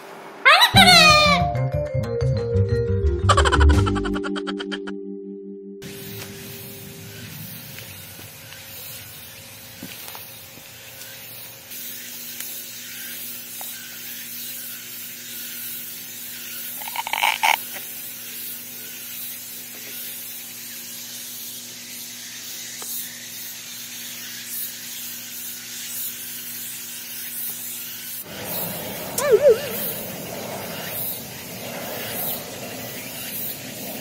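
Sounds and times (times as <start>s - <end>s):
parrot call: 0.4s - 1.5s, 16.8s - 17.6s, 28.4s - 31.0s
steady hiss: 5.8s - 34.0s.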